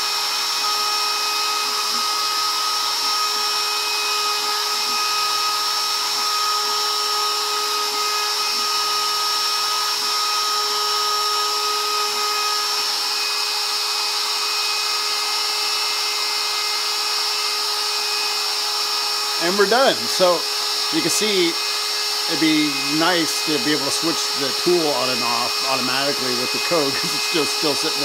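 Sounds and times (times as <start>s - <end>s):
router spindle high whine: 0.0s - 28.0s
stepper motors humming: 4.8s - 28.0s.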